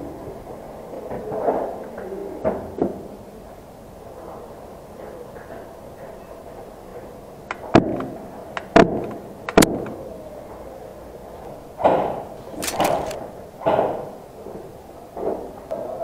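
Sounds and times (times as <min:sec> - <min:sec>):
suppressed pistol shots: 0:12.4 - 0:13.2.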